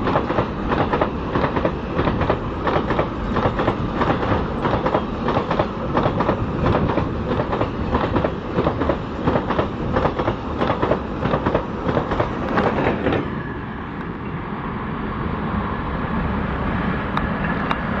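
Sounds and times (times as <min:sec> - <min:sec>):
train wheels clicking over rail joints: 0:00.0 - 0:13.4
freight train rumble: 0:00.0 - 0:18.0.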